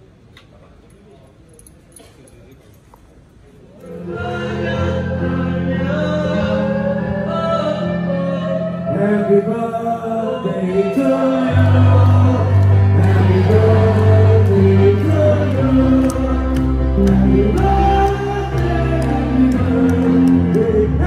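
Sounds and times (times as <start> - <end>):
man singing into a microphone: 3.9 - 21.0
sustained bass notes: 3.9 - 21.0
electric guitar: 10.7 - 21.0.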